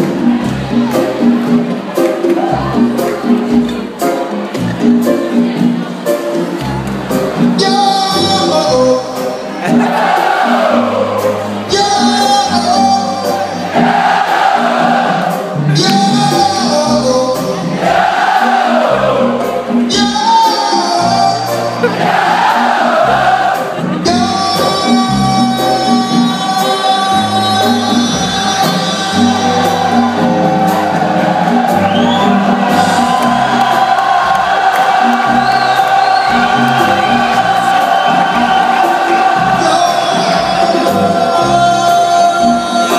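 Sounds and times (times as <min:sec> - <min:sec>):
congas: 0:00.0 - 0:42.9
keyboards: 0:00.0 - 0:42.9
live latin jazz band: 0:00.0 - 0:42.9
percussion: 0:00.0 - 0:42.9
man singing: 0:07.4 - 0:09.8, 0:10.8 - 0:13.8, 0:15.6 - 0:17.8, 0:19.1 - 0:21.9, 0:23.8 - 0:30.3, 0:36.2 - 0:42.9
crowd singing along: 0:07.4 - 0:42.9
bass line: 0:18.8 - 0:42.9.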